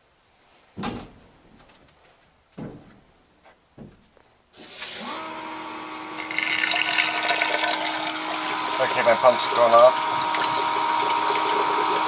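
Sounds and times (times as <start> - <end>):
pump motor hum: 4.6 - 12.0
water rushing through pump: 4.6 - 12.0.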